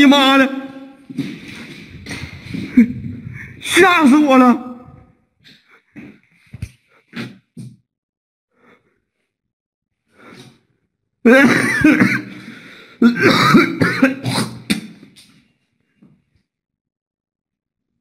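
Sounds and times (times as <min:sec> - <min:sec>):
person coughing hard: 0:11.3 - 0:14.8.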